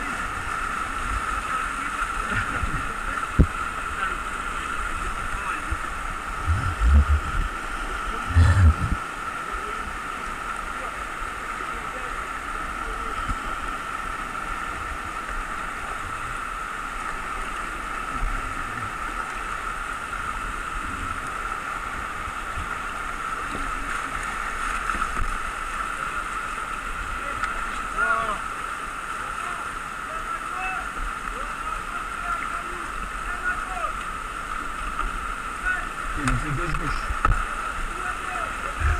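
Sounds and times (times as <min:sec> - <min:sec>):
river rapids rushing: 0:00.0 - 0:38.9
low thumps: 0:06.3 - 0:07.6, 0:08.3 - 0:09.0.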